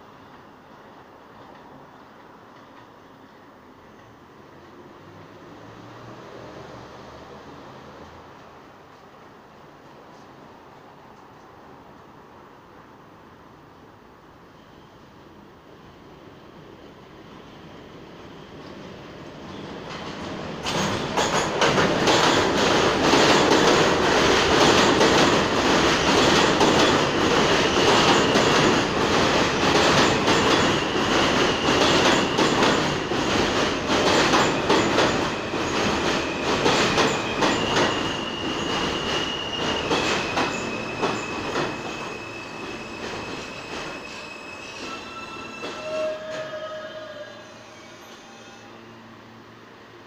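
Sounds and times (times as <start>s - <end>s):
subway train rumble: 0.0s - 50.0s
train brakes whining: 25.0s - 49.4s.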